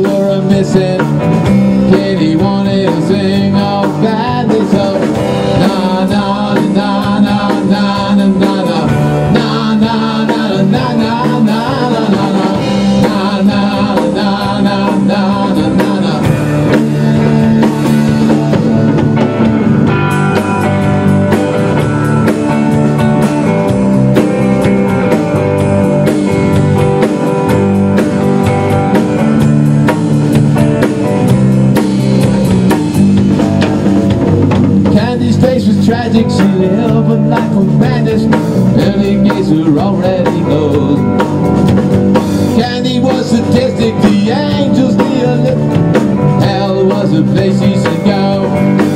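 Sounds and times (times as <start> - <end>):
drum kit with cymbals: 0.0 - 48.9
electric guitars: 0.0 - 48.9.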